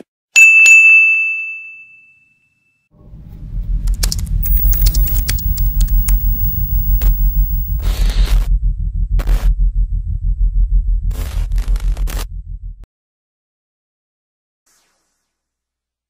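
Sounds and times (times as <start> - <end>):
sharp typing clicks: 4.4 - 7.8
low pulsing rumble: 4.4 - 7.9.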